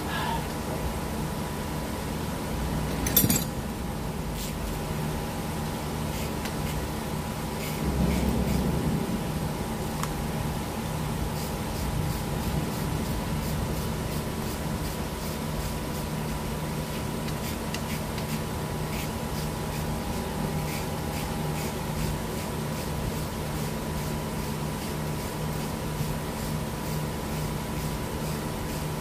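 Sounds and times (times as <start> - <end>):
machine hum with low drone: 0.0 - 29.0
hand tool clicking on metal: 2.9 - 3.5.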